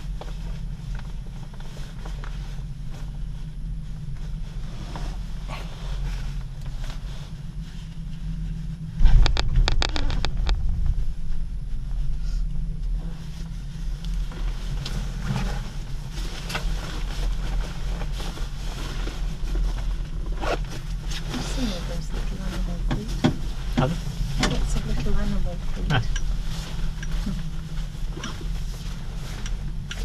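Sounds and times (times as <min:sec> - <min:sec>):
cable car low rumble: 0:00.0 - 0:30.0
rapid clattering: 0:08.9 - 0:12.2.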